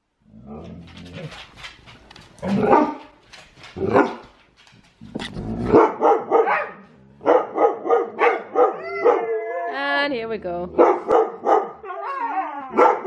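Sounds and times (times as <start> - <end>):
dog barking: 2.6 - 3.0, 5.7 - 9.3, 10.8 - 12.1, 12.7 - 13.0.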